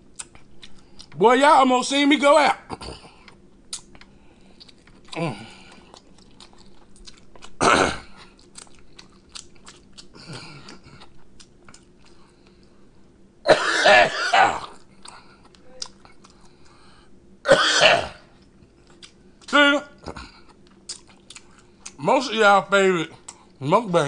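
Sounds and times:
throat clearing: 2.7 - 3.2
man coughing: 7.6 - 8.1, 13.5 - 14.8, 17.5 - 18.2.

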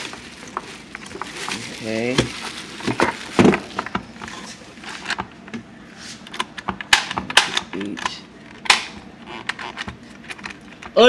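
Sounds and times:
plastic wrap crinkling: 0.0 - 5.0
sharp plastic clicks: 6.3 - 11.0.

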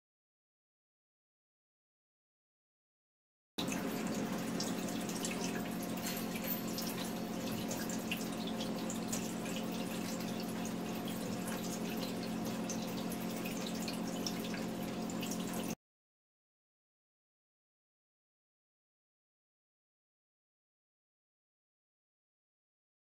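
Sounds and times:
tap water running and splashing: 3.6 - 15.8
water drips: 3.6 - 15.8.

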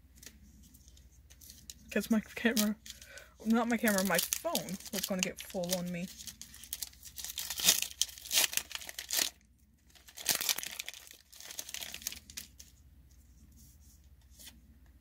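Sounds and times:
light rustling of cards: 0.0 - 7.2
foil wrapper crinkling and tearing: 0.9 - 12.7.

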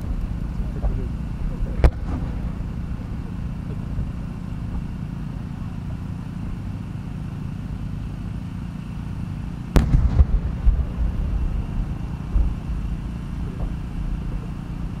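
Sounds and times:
low background rumble: 0.0 - 15.0
rolling booms and echoes: 1.8 - 5.0, 9.7 - 14.3
firework shell bursting: 1.8 - 5.1, 9.7 - 15.0.

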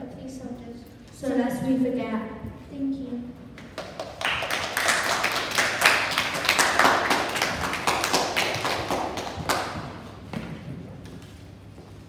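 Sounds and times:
many hands clapping: 3.6 - 10.2.

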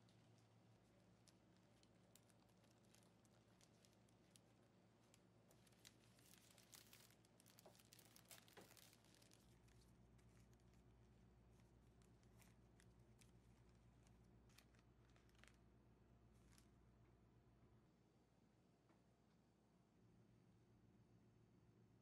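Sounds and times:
cellophane crinkling: 0.0 - 15.7, 16.3 - 16.8
low room hum: 0.0 - 22.0.

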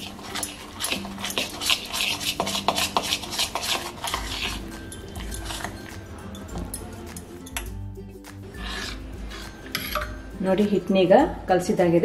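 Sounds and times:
spoon scraping a steel bowl: 0.0 - 7.8, 8.4 - 10.2.

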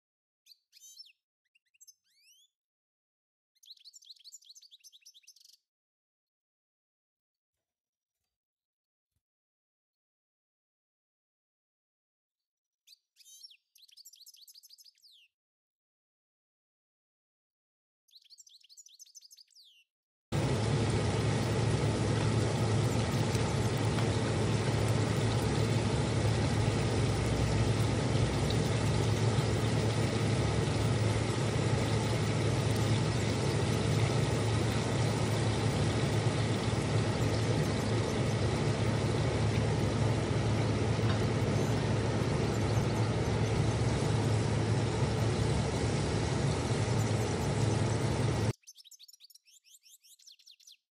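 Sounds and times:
steady low hum: 20.3 - 48.6
constant hiss: 20.4 - 48.5.

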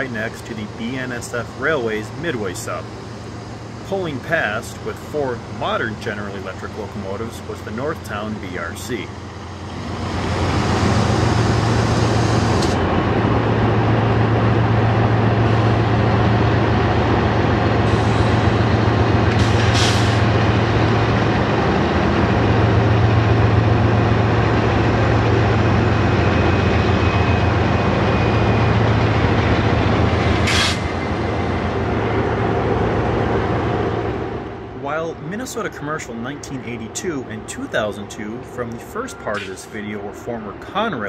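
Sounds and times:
diesel locomotive engine drone: 0.0 - 41.0
air brake hisses: 19.4 - 20.3, 30.4 - 30.9.

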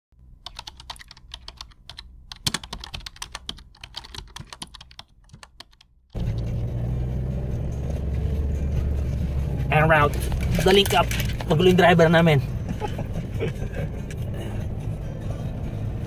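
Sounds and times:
keyboard typing clicks: 0.4 - 5.9
vehicle driving drone: 6.2 - 16.0.

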